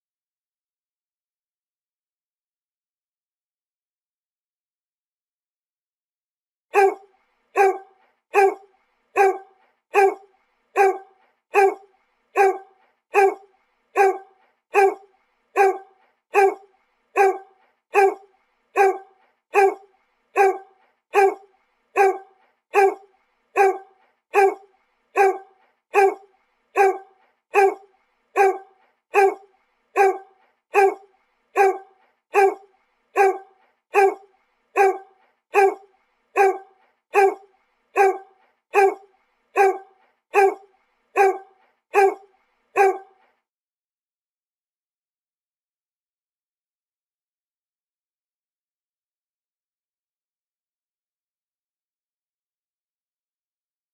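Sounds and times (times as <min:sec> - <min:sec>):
dog barking: 0:06.8 - 0:43.3.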